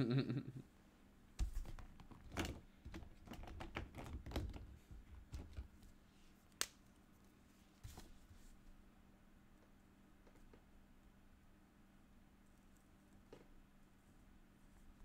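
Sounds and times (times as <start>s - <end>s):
faint irregular clicking and tapping: 1.4s - 8.1s, 9.5s - 10.8s.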